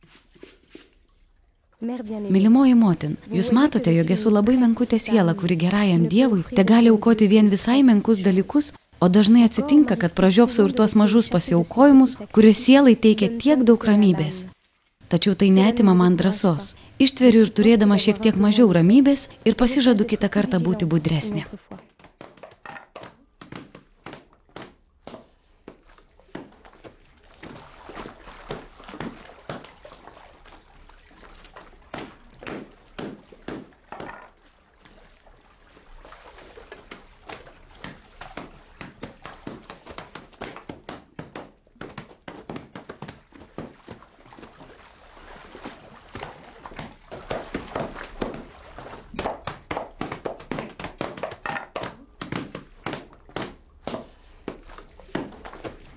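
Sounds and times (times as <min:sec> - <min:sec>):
wet laundry slapped and scrubbed: 0:00.0 - 0:01.0, 0:17.3 - 0:55.9
water splashing: 0:00.0 - 0:55.9.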